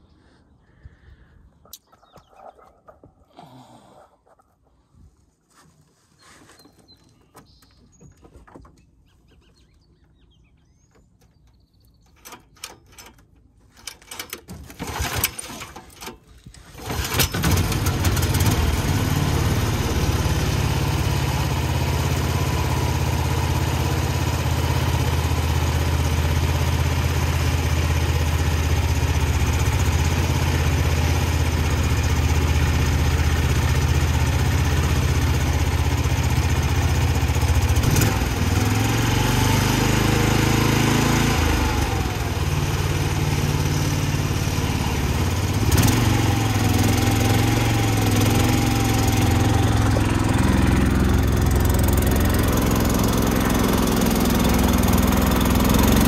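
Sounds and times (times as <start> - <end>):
engine cranking: 11.2 - 20.9
engine running under load: 14.7 - 56.0.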